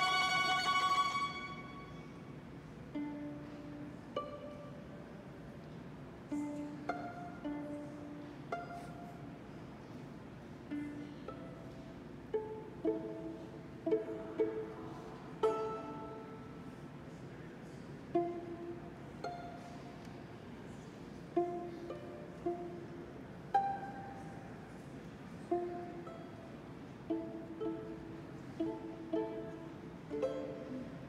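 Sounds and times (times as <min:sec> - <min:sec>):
plucked violin and viola notes: 0:00.0 - 0:02.3, 0:02.9 - 0:05.0, 0:06.3 - 0:09.2, 0:10.6 - 0:16.7, 0:18.1 - 0:19.9, 0:21.3 - 0:24.6, 0:25.4 - 0:31.0.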